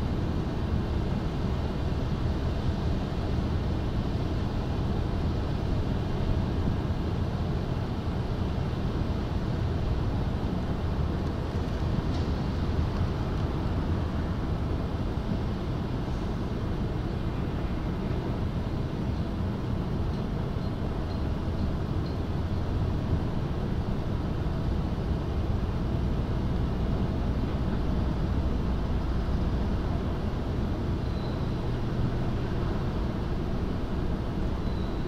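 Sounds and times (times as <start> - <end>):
low rumbling harbour ambience: 0.0 - 35.0
faint high chirps: 31.0 - 31.6, 34.6 - 35.0.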